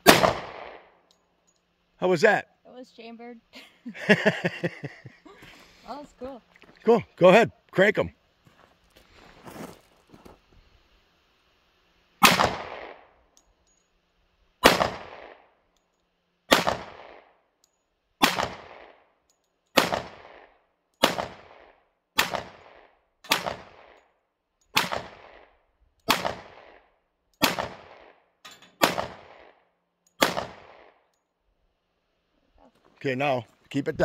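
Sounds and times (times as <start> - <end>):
pistol shots with echo: 0.0 - 0.8, 14.6 - 15.4, 16.5 - 17.3, 18.2 - 19.0, 19.8 - 23.9, 24.8 - 25.4, 26.1 - 26.7, 27.4 - 28.2, 28.8 - 29.6, 30.2 - 31.0.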